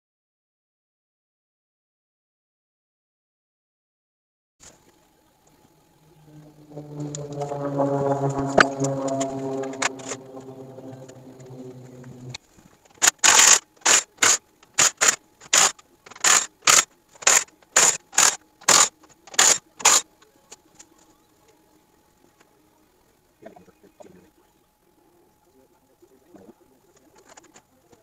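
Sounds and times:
ratchet wrench clicking: 0:13.0 - 0:20.0.

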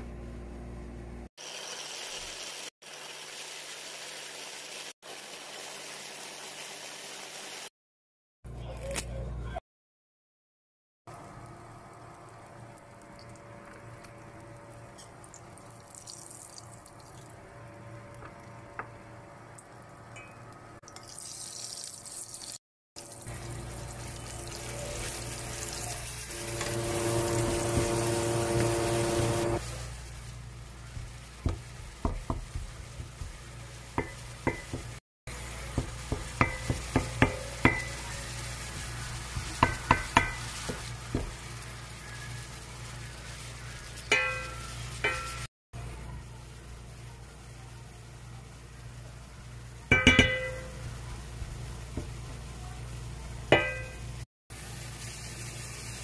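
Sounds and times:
meat sizzling in hot oil: 0:01.4 - 0:07.7, 0:21.0 - 0:45.5, 0:48.6 - 0:56.0
spatula knocking and scraping pan: 0:26.6 - 0:29.6, 0:30.9 - 0:35.0, 0:35.6 - 0:41.4, 0:53.5 - 0:54.0.

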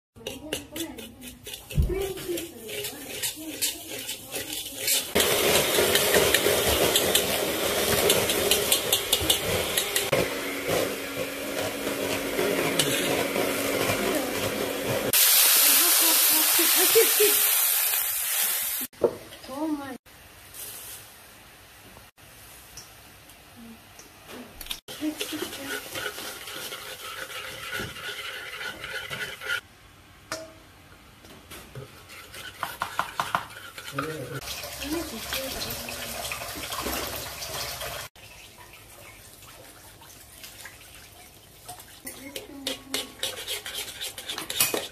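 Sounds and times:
metal spoon scraping a wok: 0:00.2 - 0:15.2, 0:24.9 - 0:29.6, 0:31.8 - 0:34.4, 0:42.2 - 0:44.9
food frying in hot fat: 0:01.5 - 0:29.6, 0:31.7 - 0:44.9.

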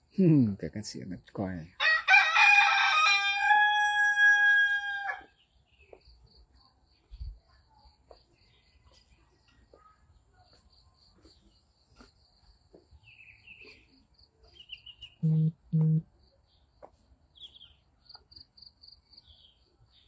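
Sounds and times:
bird chirps: 0:13.0 - 0:20.0.

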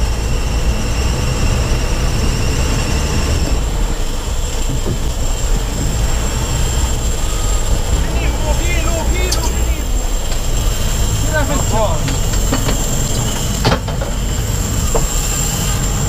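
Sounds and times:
low rumble: 0:00.0 - 0:16.0
fishing reel drag screaming: 0:05.6 - 0:12.3.

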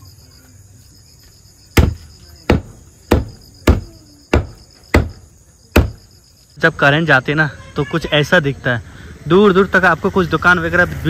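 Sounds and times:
cleaver chopping on block: 0:01.8 - 0:06.0.

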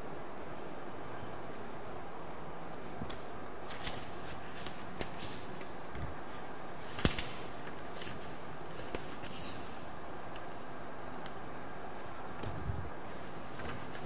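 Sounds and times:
room tone hiss: 0:00.0 - 0:14.0
paper sheets rustling: 0:03.6 - 0:10.5, 0:12.4 - 0:14.0.

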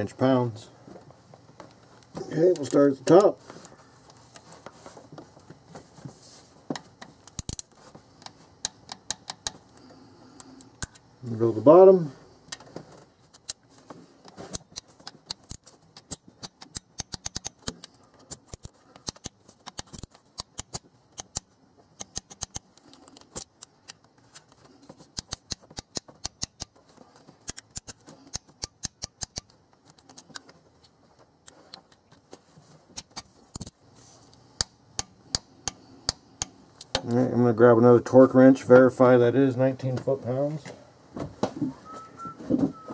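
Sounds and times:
ratcheting torque wrench clicking: 0:14.5 - 0:22.7.

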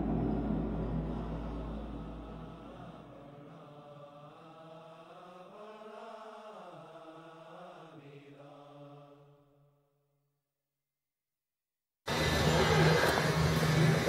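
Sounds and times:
deep drone: 0:00.0 - 0:04.2.

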